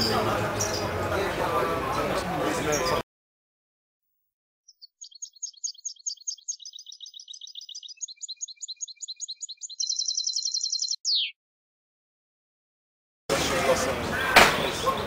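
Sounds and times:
goldfinch singing: 4.7s - 11.4s.

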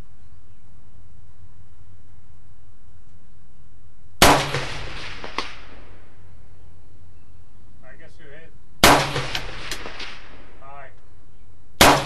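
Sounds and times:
rifle shots echoing: 4.2s - 6.1s, 8.8s - 10.6s, 11.8s - 12.0s.

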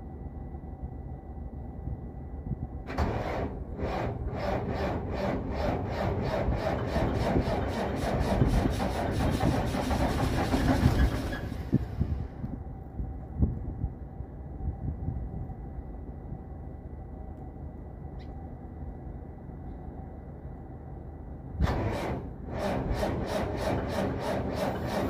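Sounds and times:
diesel engine cranking on starter: 2.9s - 12.3s, 21.6s - 25.0s.

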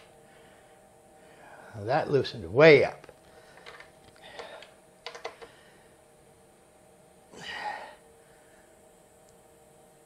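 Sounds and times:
breathy exhale: 7.3s - 8.7s.

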